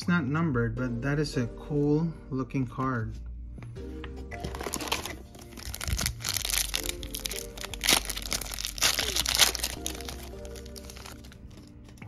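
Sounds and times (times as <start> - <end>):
background music: 0.0 - 12.0
foil wrapper tearing and crinkling: 4.5 - 11.4.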